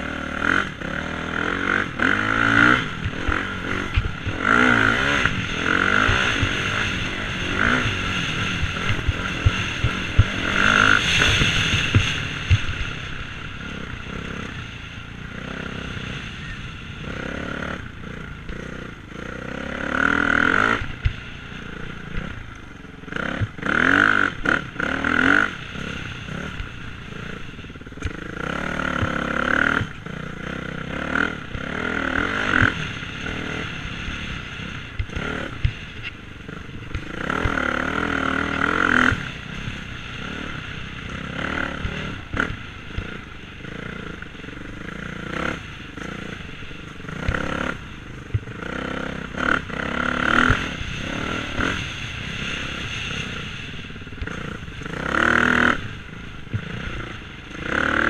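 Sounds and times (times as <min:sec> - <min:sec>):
dirt bike engine revving: 0:00.0 - 0:58.0.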